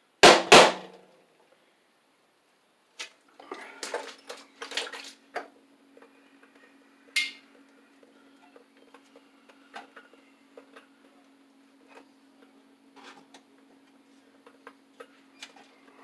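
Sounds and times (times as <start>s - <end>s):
faint low hum: 1.0s - 16.0s.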